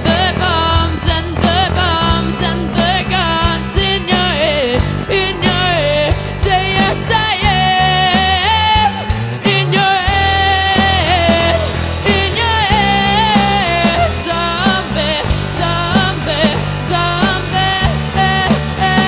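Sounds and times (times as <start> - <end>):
drum kit hits: 0.0 - 19.0
electric bass: 0.0 - 19.0
electric guitars: 0.0 - 19.0.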